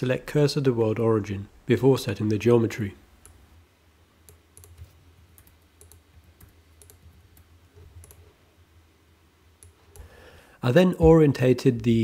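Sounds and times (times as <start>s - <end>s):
low steady hum: 0.0s - 12.0s
computer mouse clicks: 3.2s - 3.4s, 4.2s - 8.3s.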